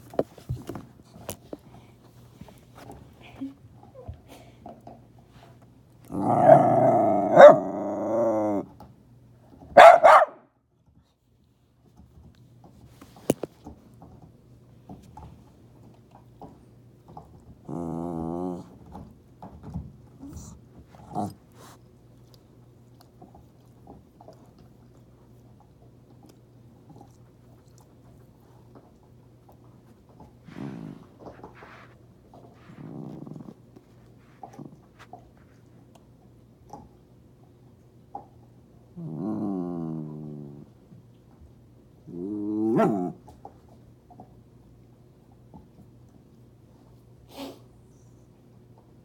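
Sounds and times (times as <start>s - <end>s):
dog growling: 6.0s - 8.8s, 17.6s - 19.0s, 20.2s - 21.8s, 30.4s - 35.1s, 38.9s - 40.8s, 42.0s - 43.3s
dog barking: 7.3s - 7.7s, 9.7s - 10.5s
dog chewing: 20.9s - 37.0s.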